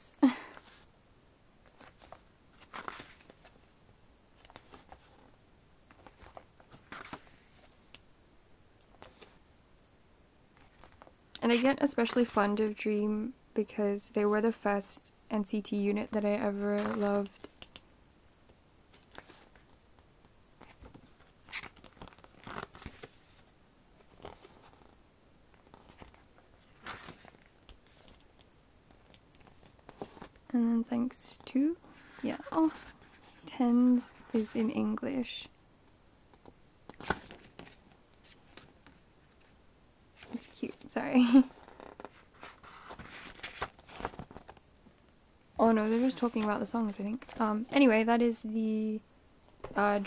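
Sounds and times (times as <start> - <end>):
photobook pages turning: 1.7 - 3.6, 5.9 - 8.0, 8.9 - 9.4, 16.6 - 17.8, 18.9 - 19.8, 20.6 - 30.4, 36.9 - 39.6, 40.2 - 44.6.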